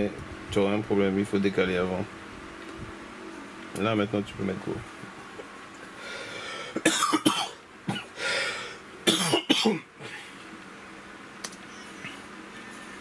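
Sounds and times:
person coughing: 6.7s - 8.1s, 9.1s - 10.3s.

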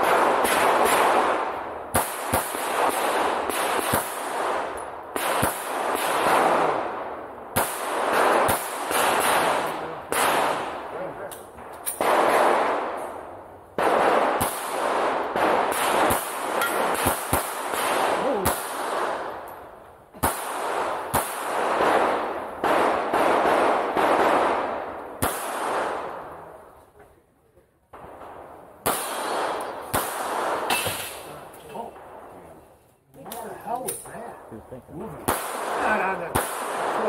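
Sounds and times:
echoing pistol shots: 0.0s - 26.7s, 27.9s - 31.3s, 35.2s - 37.0s.

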